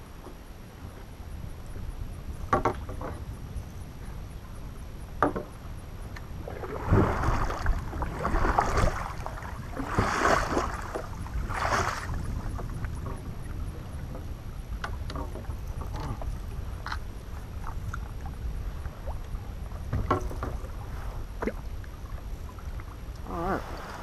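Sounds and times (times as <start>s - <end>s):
paddle splashing in water: 6.4s - 24.0s.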